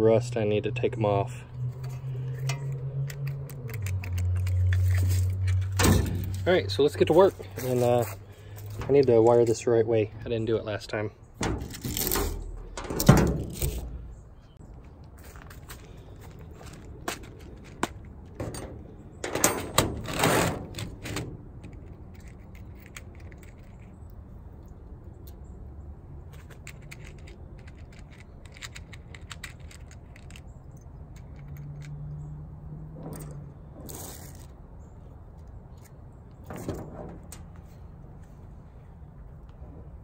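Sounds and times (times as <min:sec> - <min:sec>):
small terminals rattling: 0:01.7 - 0:09.6, 0:20.8 - 0:24.2, 0:26.3 - 0:32.2.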